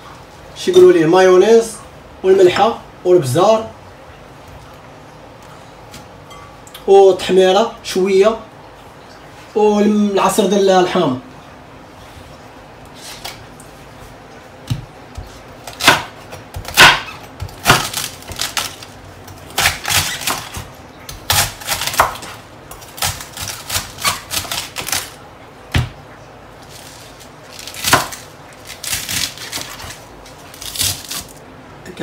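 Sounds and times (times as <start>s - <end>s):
knife shredding cabbage on board: 19.5s - 25.2s, 26.6s - 31.4s.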